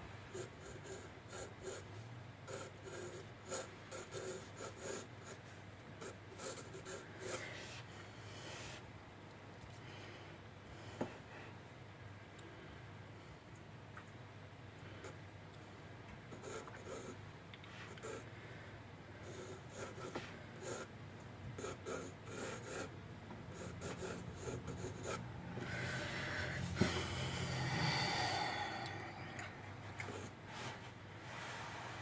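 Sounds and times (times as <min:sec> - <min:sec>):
pencil scratching on paper: 0:00.3 - 0:01.9, 0:02.5 - 0:05.4, 0:06.0 - 0:08.8, 0:19.2 - 0:20.9, 0:21.6 - 0:22.9, 0:23.5 - 0:25.8
breathy noise: 0:25.2 - 0:30.8.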